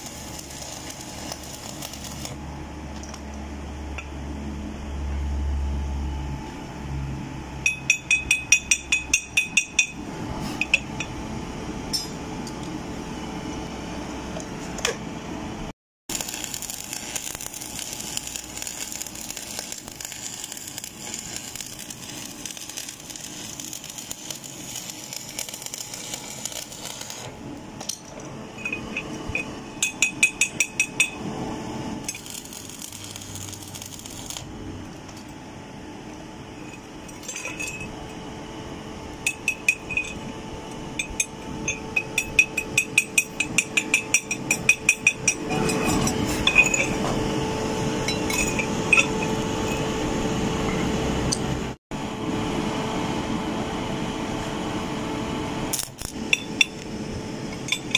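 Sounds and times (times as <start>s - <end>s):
arc welding hiss: 0.0s - 2.4s, 16.1s - 27.4s, 32.1s - 34.5s.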